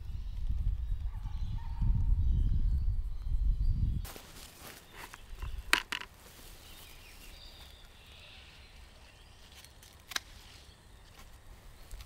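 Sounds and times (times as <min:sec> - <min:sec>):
secateurs snipping stems: 0:09.4 - 0:11.3.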